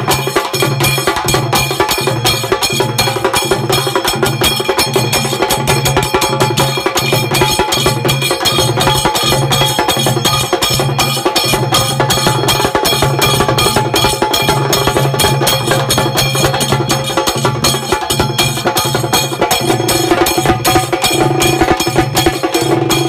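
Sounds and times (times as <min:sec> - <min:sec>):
hand cymbals clashing: 0:00.0 - 0:23.0
fast drum stick strokes: 0:14.4 - 0:23.0
bass drum beating: 0:19.4 - 0:23.0.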